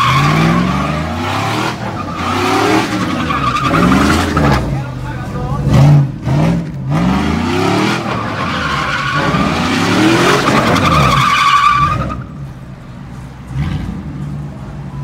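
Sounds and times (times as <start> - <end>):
tyres squealing on asphalt: 0.0 - 12.8
engine revving: 5.6 - 11.1.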